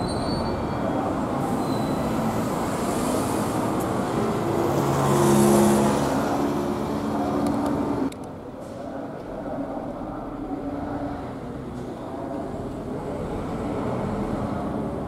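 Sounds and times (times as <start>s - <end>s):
passing vehicle engine hum: 0.0s - 8.1s
traffic road noise rumble: 0.0s - 15.0s.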